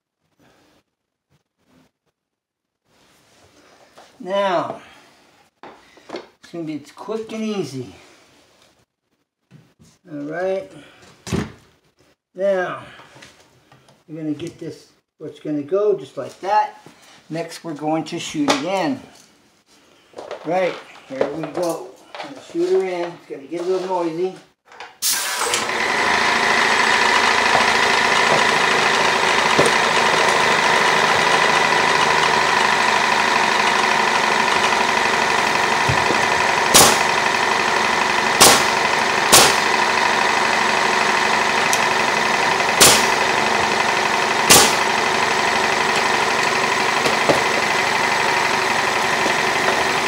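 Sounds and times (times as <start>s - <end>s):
air compressor whining hum: 25.0s - 50.0s
nail gun shots: 36.7s - 37.1s, 38.4s - 39.7s, 42.8s - 43.2s, 44.5s - 44.9s.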